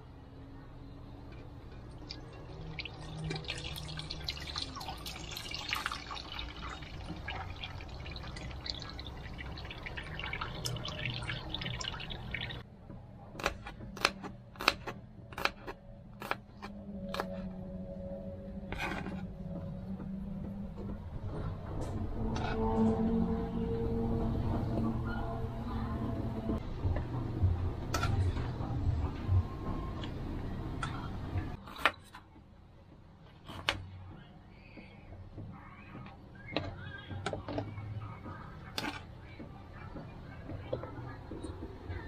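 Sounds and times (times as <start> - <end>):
liquid pouring and splashing: 1.9 - 12.6.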